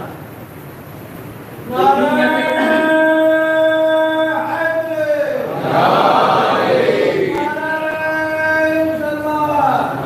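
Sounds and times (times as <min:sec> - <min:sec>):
voices chanting: 0:05.4 - 0:09.0.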